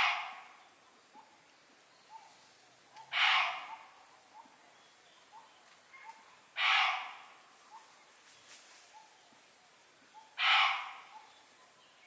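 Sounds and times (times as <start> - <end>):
harsh rasping animal calls: 0.0 - 0.5, 3.0 - 3.9, 6.6 - 7.2, 10.4 - 11.2.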